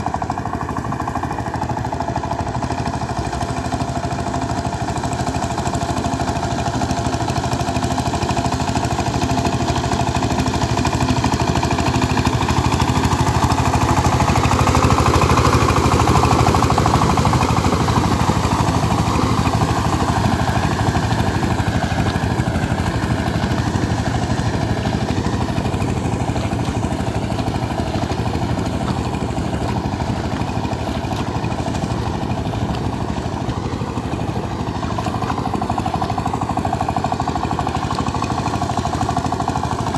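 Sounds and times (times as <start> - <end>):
diesel tiller engine running: 0.0 - 39.9.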